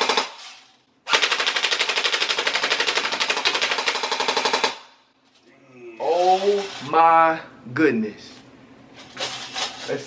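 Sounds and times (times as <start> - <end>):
airsoft gun full-auto burst: 1.1 - 4.8.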